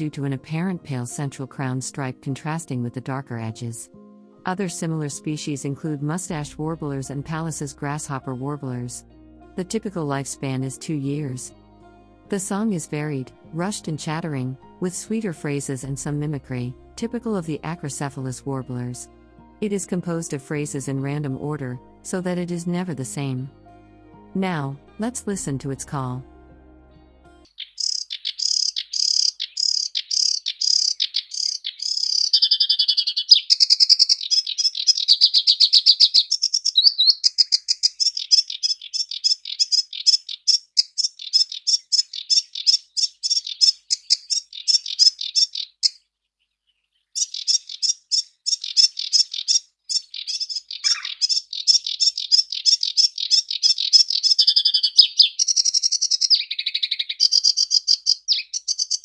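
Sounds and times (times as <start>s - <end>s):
warbler singing rapid notes: 27.5s - 59.0s.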